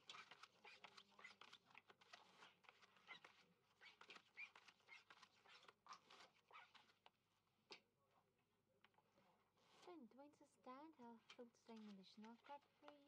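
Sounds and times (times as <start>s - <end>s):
playing cards being dealt: 0.0s - 7.1s.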